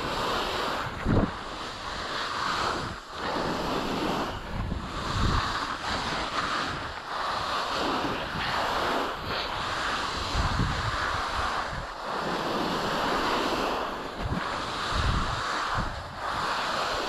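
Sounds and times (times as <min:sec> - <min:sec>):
skis hissing over snow: 0:00.0 - 0:17.0
wind buffeting microphone: 0:00.0 - 0:17.0.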